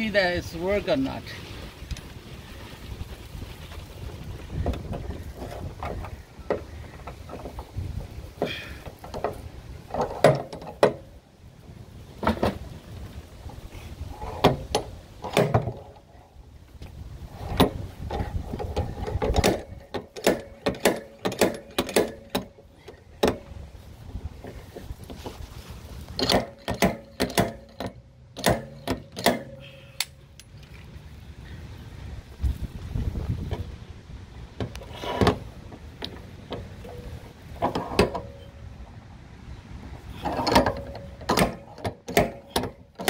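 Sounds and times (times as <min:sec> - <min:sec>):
metal clicks and clanks: 0:08.4 - 0:11.1, 0:14.2 - 0:16.2, 0:17.4 - 0:23.6, 0:26.0 - 0:30.9, 0:34.5 - 0:38.6, 0:40.1 - 0:43.0.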